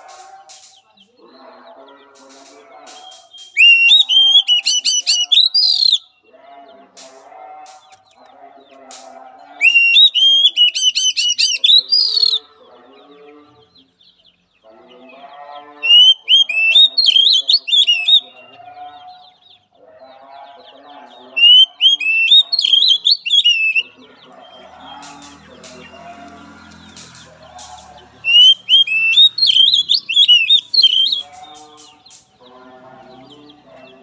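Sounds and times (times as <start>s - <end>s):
bird singing whistled phrases: 2.9s - 6.1s, 9.6s - 12.4s, 15.9s - 18.4s, 21.4s - 23.9s, 28.2s - 31.6s.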